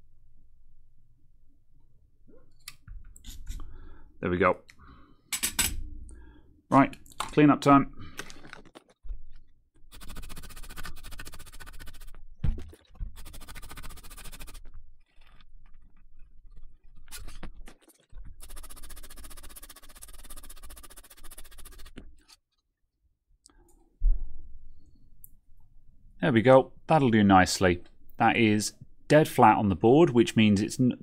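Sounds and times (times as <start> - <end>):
scratchy scrubbing on circuit board: 9.9 - 12.2, 13.2 - 17.7, 18.3 - 22.4.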